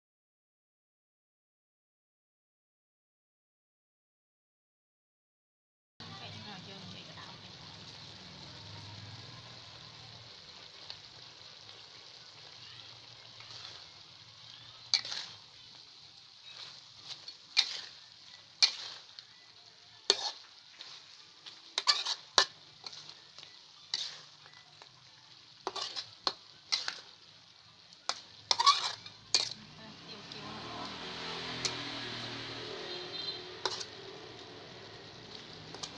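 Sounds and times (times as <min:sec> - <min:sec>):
chicken sizzling in a pan: 0:06.0 - 0:35.9
metal spatula scraping a pan: 0:13.2 - 0:27.3, 0:28.1 - 0:35.9.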